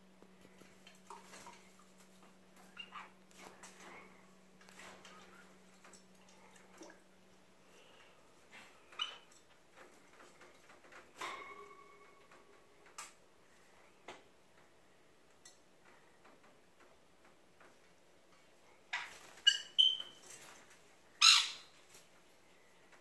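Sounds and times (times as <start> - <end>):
parrots squawking and chirping: 2.7 - 3.1, 8.9 - 9.3, 18.9 - 20.2, 21.2 - 21.8.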